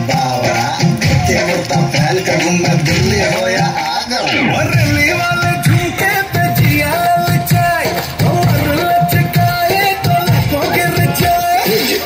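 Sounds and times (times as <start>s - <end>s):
loud dance song: 0.0s - 12.0s
person singing: 0.0s - 12.0s
thumping beat: 0.0s - 12.0s.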